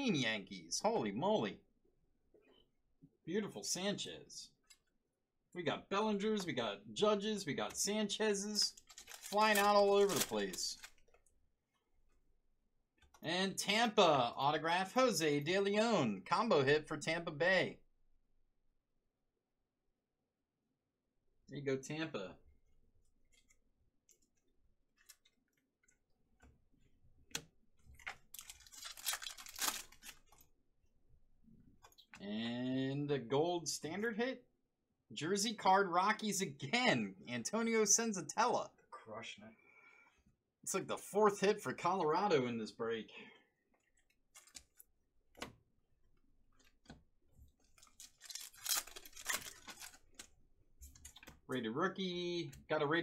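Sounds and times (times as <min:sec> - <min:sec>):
foil pack crinkling and tearing: 0:08.7 - 0:11.0, 0:28.0 - 0:30.4, 0:47.7 - 0:50.3.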